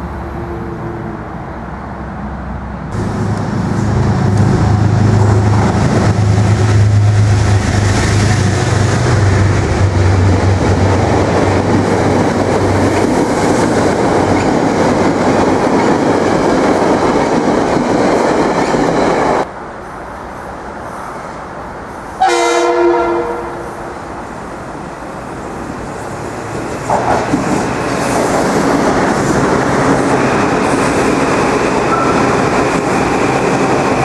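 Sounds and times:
locomotive passing with low hum: 0:00.0 - 0:19.5
train wheels rushing and rattling: 0:02.9 - 0:19.5, 0:24.8 - 0:34.0.

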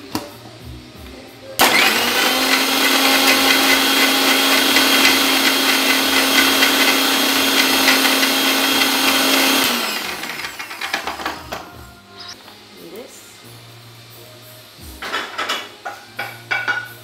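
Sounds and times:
electric mixer grinder running: 0:01.6 - 0:11.6.

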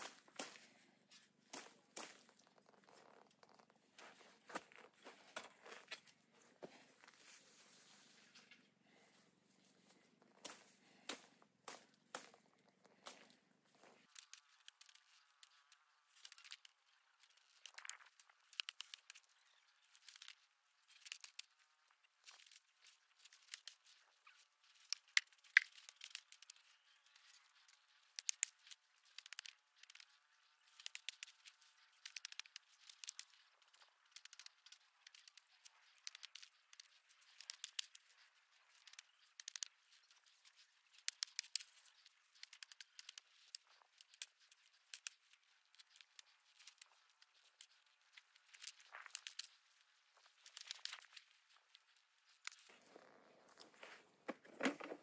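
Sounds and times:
weeds pulled from dry soil: 0:09.9 - 0:54.2.

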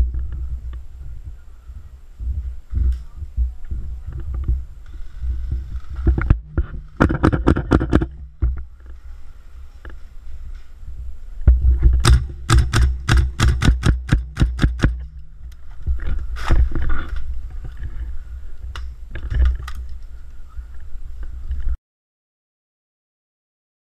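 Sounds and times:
steady low rumble: 0:00.0 - 0:21.8.

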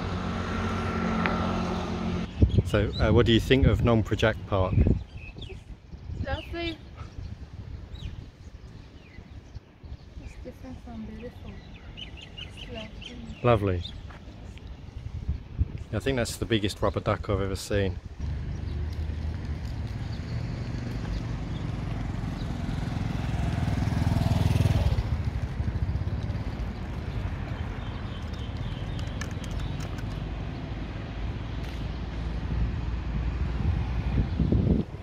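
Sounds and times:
motor vehicle passing: 0:00.0 - 0:02.4, 0:18.0 - 0:35.0.

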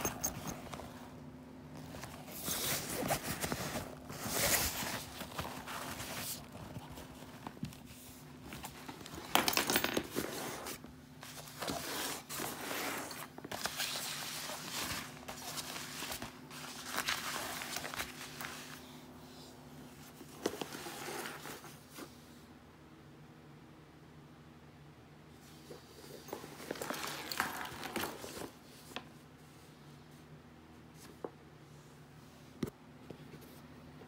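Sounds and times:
fabric bag rustling and crinkling: 0:00.0 - 0:09.4, 0:10.0 - 0:18.9.

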